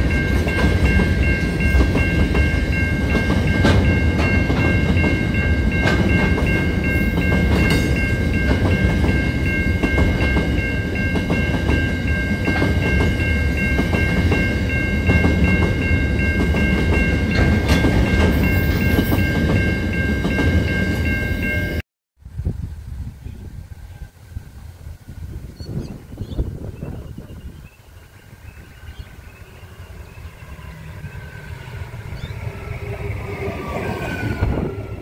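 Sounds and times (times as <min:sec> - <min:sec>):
level crossing warning bell: 0:00.0 - 0:21.8
freight train rumbling past: 0:00.0 - 0:35.0.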